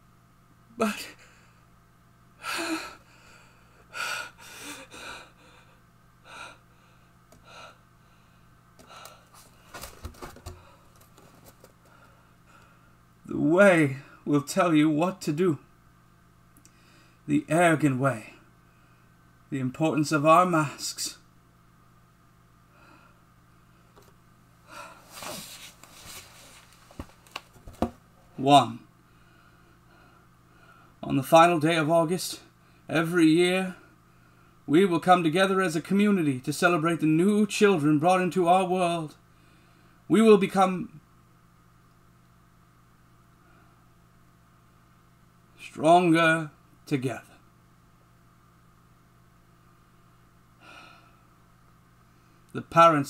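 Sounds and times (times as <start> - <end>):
man breathing: 2.4 - 11.0, 11.8 - 13.0, 16.7 - 17.2, 22.7 - 24.0, 24.6 - 25.7, 29.1 - 31.0, 50.6 - 51.4
folder rustling and clicking: 9.4 - 11.8, 26.6 - 28.0
soft rustling: 25.0 - 27.9.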